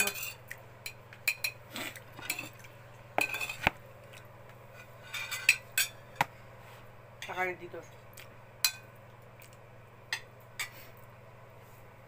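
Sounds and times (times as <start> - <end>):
cutlery clinking on a plate: 4.8 - 6.0.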